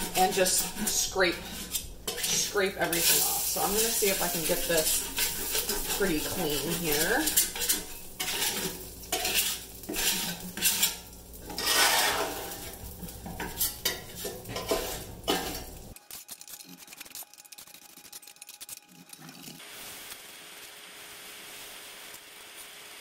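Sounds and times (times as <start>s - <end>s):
metal spatula scraping griddle: 0.0s - 15.9s.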